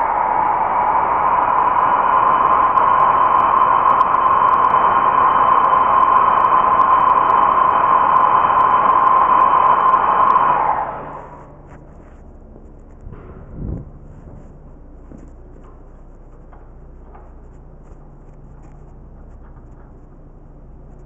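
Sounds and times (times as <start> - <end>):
compressed air rushing: 0.0 - 11.8.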